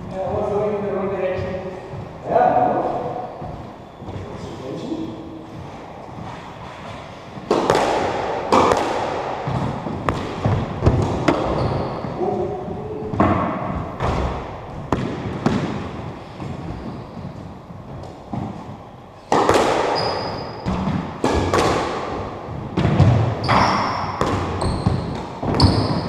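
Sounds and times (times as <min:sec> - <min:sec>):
rackets striking squash ball: 0:00.0 - 0:04.5, 0:05.4 - 0:26.0
ball hitting court walls: 0:05.6 - 0:26.0.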